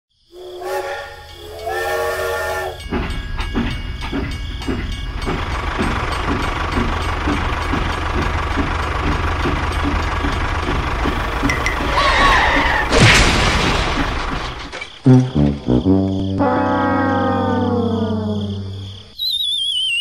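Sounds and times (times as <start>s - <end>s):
steam train whistle: 0.4s - 2.8s
rhythmic chuffing: 0.4s - 12.9s.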